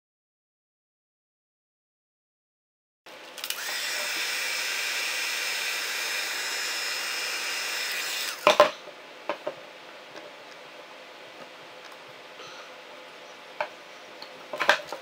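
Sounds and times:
heat gun blowing: 3.4s - 8.5s.

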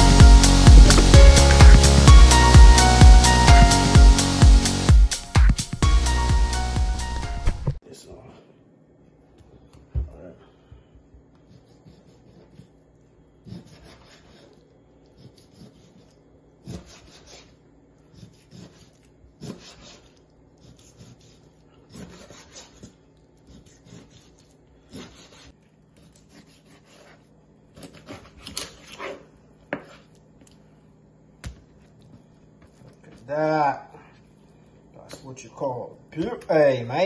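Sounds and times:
knife knocking on cutting board: 0.7s - 2.2s
knife sawing through fish bone: 11.5s - 12.8s, 13.4s - 29.3s.

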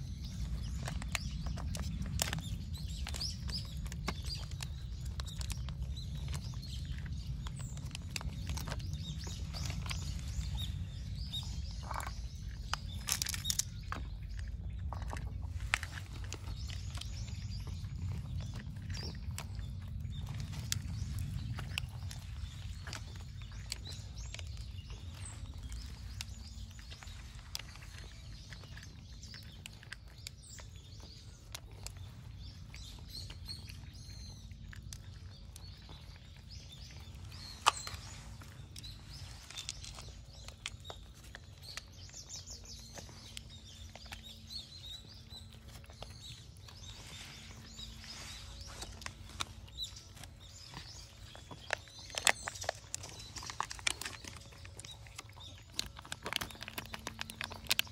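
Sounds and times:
small birds chirping: 0.0s - 57.9s
steady low rumble: 0.0s - 57.9s.

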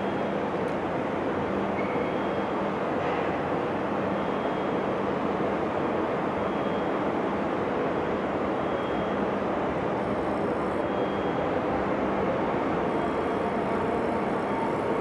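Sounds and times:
metro train rumble: 0.0s - 15.0s.

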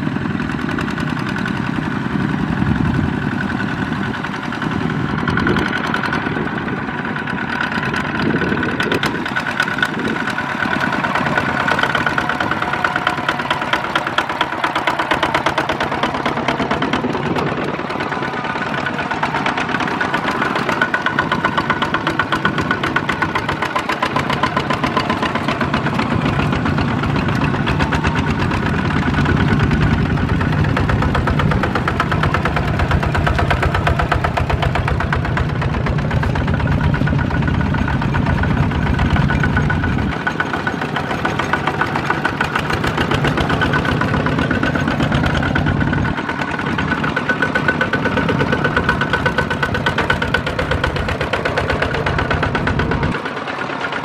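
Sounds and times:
diesel engines running under load: 0.0s - 54.0s.

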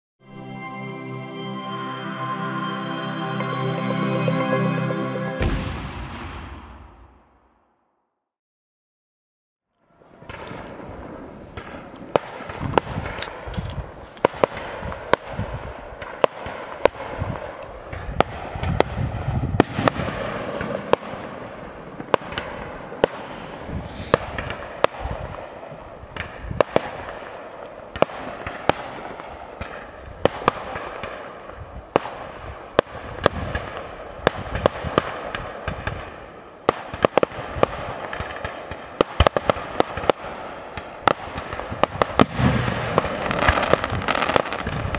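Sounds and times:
fireworks crackling and banging: 10.0s - 44.9s.

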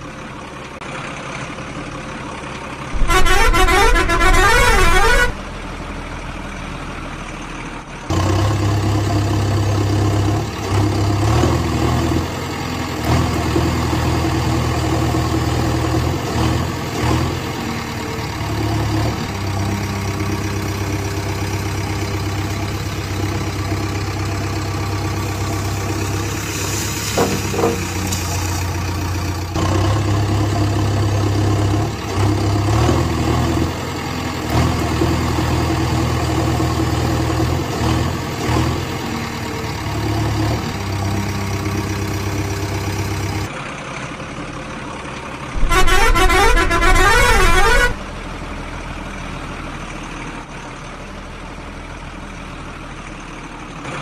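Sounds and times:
heavy truck engine rumbling: 0.0s - 54.0s
loud warbling horn: 3.0s - 5.4s, 45.6s - 48.0s.

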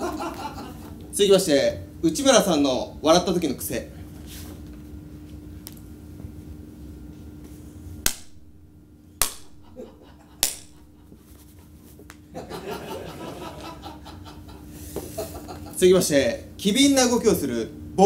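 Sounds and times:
sharp hand slaps: 8.0s - 8.5s, 9.2s - 9.7s, 10.4s - 10.9s.

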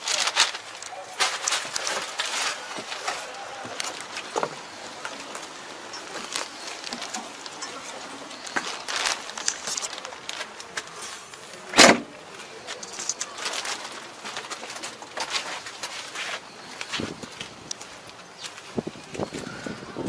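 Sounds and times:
light clicks and rustles: 0.0s - 19.4s
sharp knock: 11.8s - 12.1s.

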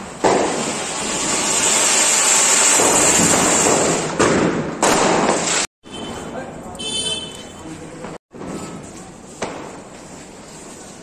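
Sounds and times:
firework spraying sparks hissing: 0.0s - 4.2s.

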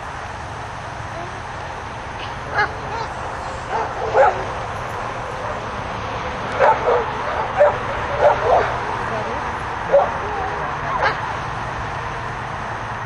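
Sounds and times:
dog yipping: 2.5s - 4.5s, 6.6s - 11.3s.

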